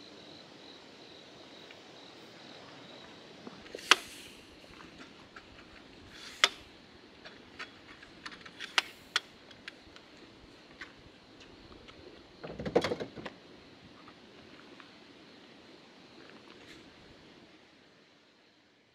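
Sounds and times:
rustling and clattering: 0:07.2 - 0:09.8.

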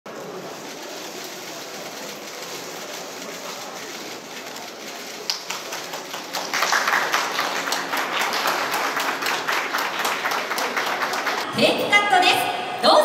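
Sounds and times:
crowd hubbub: 0:00.0 - 0:13.0
crowd clapping: 0:02.8 - 0:11.5.

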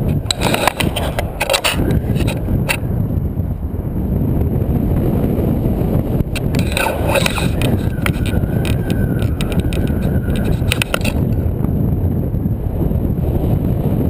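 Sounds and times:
rapid clicks and rattles: 0:00.0 - 0:02.8, 0:06.3 - 0:11.4
wind rushing over microphone: 0:00.0 - 0:14.0.

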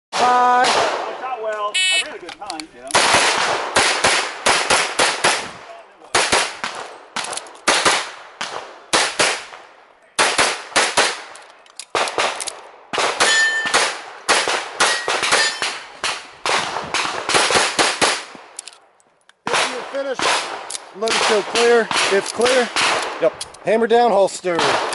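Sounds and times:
ringing of struck steel target: 0:13.3 - 0:13.8.

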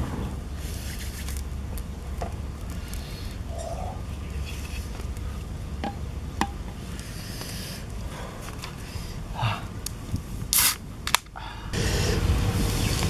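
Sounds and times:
steady low rumble: 0:00.0 - 0:13.0
can opening fizzing hiss: 0:10.5 - 0:10.8.

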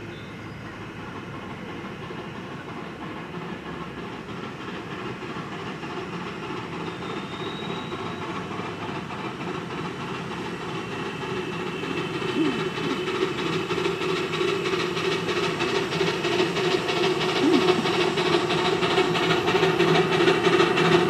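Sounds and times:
steam locomotive exhaust beats: 0:00.0 - 0:21.0
train wheels on rails: 0:00.0 - 0:21.0.

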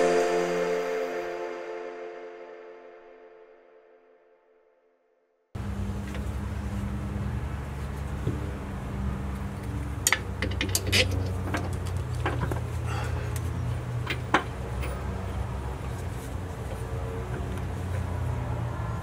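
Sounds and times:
metal tools clinking: 0:10.1 - 0:12.5.

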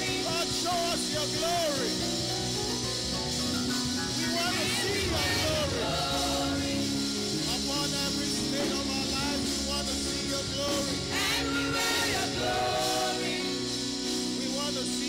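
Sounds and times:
people singing: 0:00.0 - 0:00.7, 0:04.2 - 0:09.3, 0:09.9 - 0:15.0
band playing held chords: 0:00.0 - 0:15.0.

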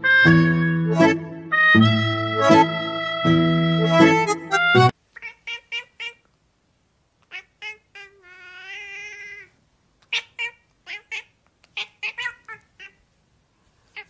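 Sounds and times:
cat meowing: 0:07.3 - 0:13.0.

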